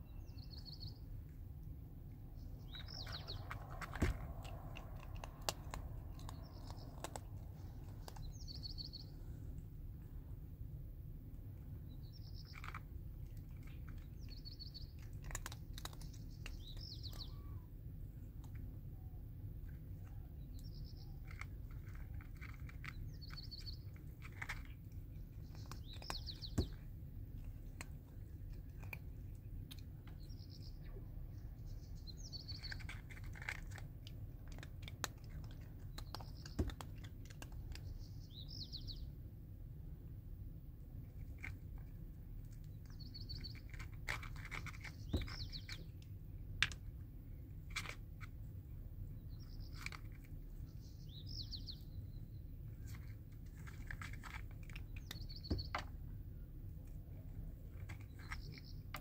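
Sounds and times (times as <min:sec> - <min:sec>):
small bird chirping: 0:00.0 - 0:01.4, 0:02.2 - 0:09.4, 0:11.6 - 0:17.8, 0:18.5 - 0:39.2, 0:42.5 - 0:46.1, 0:49.0 - 0:56.5, 0:57.1 - 0:59.0
cat crunching dry kibble: 0:02.4 - 0:09.4, 0:11.2 - 0:17.2, 0:19.5 - 0:30.4, 0:32.4 - 0:38.0, 0:40.9 - 0:50.7, 0:52.6 - 0:56.0, 0:56.6 - 0:59.0.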